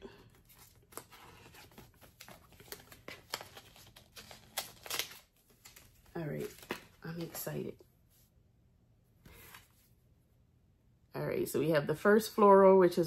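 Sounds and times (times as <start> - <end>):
plastic wrapper crinkling and tearing: 0.4 - 7.4.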